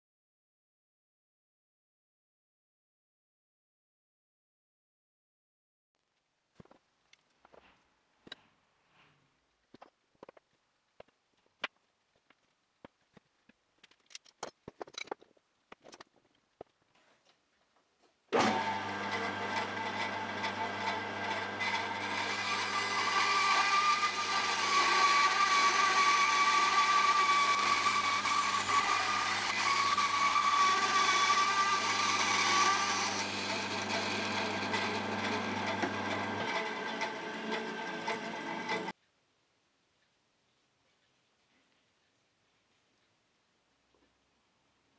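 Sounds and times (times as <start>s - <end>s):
bandsaw cutting wood: 18.4s - 38.9s.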